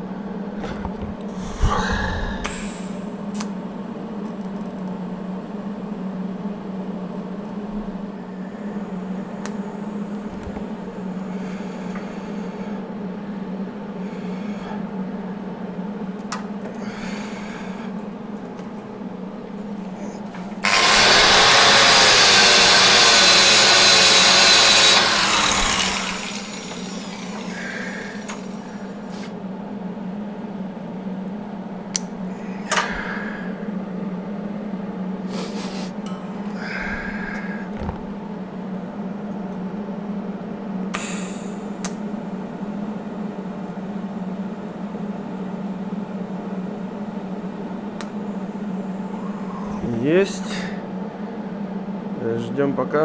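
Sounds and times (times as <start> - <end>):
electrical hum: 0.0 - 53.0
rotary power tool spinning: 20.6 - 28.6.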